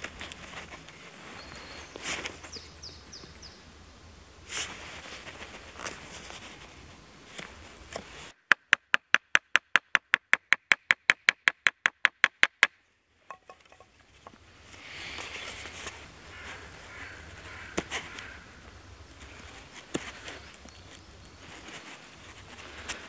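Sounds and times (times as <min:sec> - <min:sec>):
wooden baton tapping knife spine: 0:13.3 - 0:13.9
knife shaving wood: 0:19.1 - 0:23.0.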